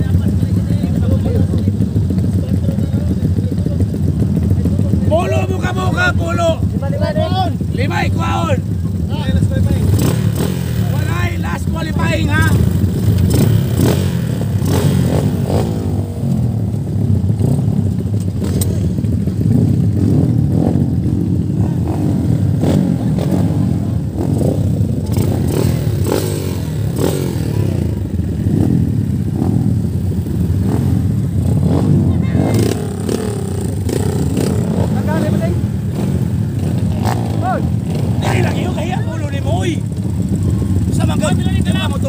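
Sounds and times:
motorcycle engines running: 0.0s - 42.0s
sharp clicks and knocks: 17.9s - 19.1s.

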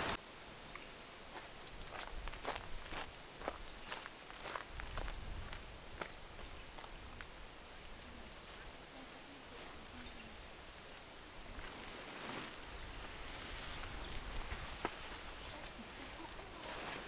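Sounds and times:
faint outdoor background hiss: 0.0s - 17.0s.

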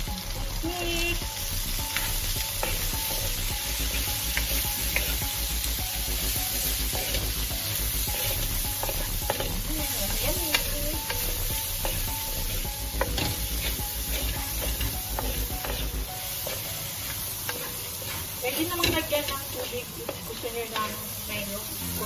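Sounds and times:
food sizzling in a frying pan: 0.0s - 22.0s
spatula scraping a pan: 1.9s - 5.4s, 7.0s - 21.1s.

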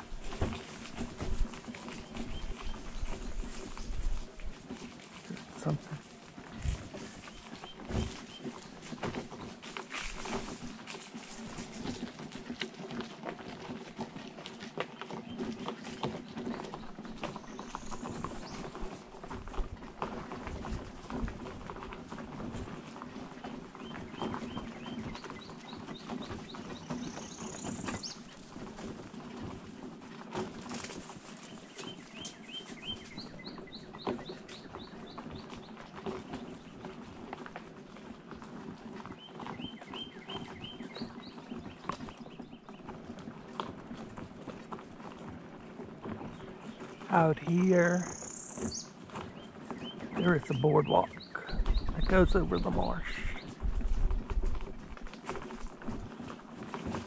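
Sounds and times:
wheels crunching on gravel: 0.0s - 57.0s
songbird chirping: 15.0s - 19.0s, 23.7s - 28.7s, 31.3s - 37.0s, 39.0s - 43.0s, 46.2s - 53.7s.

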